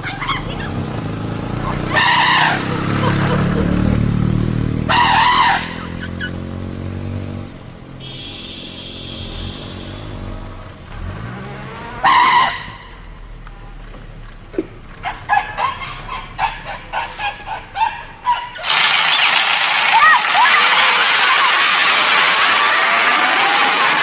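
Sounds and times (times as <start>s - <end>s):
vehicle engine revving: 0.0s - 24.0s
short shrill bursts: 18.5s - 23.6s.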